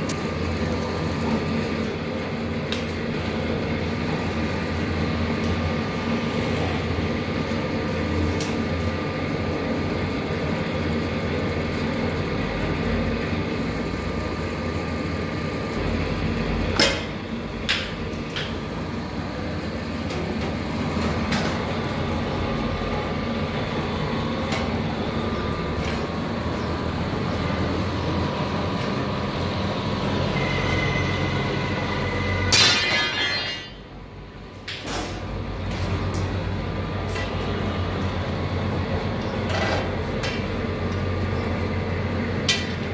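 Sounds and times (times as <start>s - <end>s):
workshop machinery humming: 0.0s - 42.9s
steady machine tones: 20.6s - 34.5s.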